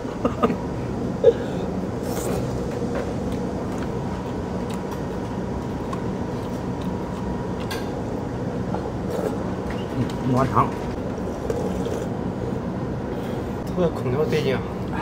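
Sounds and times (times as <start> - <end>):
air conditioner humming: 0.0 - 15.0
slurping noodles: 11.3 - 12.2.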